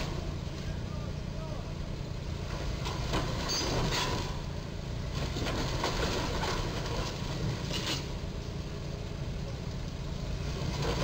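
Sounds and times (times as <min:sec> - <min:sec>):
low engine rumble: 0:00.0 - 0:11.0
truck roof scraping metal beam: 0:02.8 - 0:04.5.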